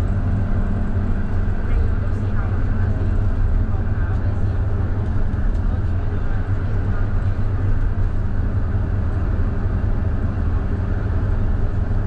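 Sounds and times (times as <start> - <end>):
bus diesel engine running: 0.0 - 12.0
road noise: 0.0 - 12.0.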